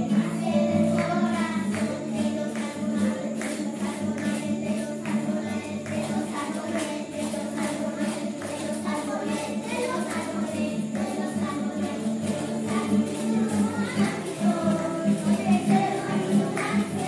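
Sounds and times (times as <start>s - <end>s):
acoustic guitar: 0.0s - 17.0s
children singing: 0.0s - 17.0s
light percussion beat: 0.0s - 17.0s.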